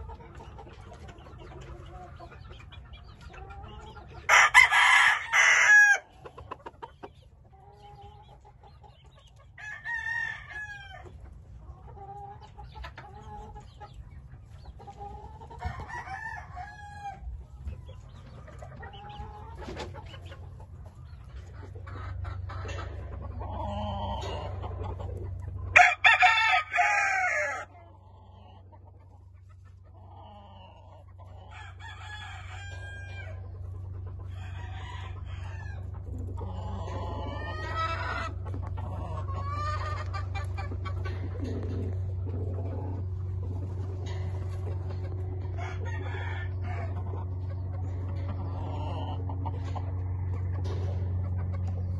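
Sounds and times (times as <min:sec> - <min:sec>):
distant roosters crowing: 0:04.2 - 0:06.8, 0:09.4 - 0:11.2, 0:15.0 - 0:17.6, 0:22.1 - 0:28.8, 0:30.0 - 0:51.9
rooster crowing loudly: 0:04.3 - 0:06.0, 0:25.8 - 0:27.6.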